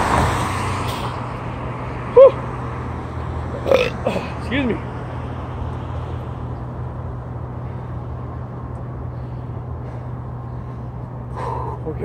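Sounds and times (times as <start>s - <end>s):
outdoor background noise: 0.0s - 12.0s
steady low hum: 2.9s - 12.0s.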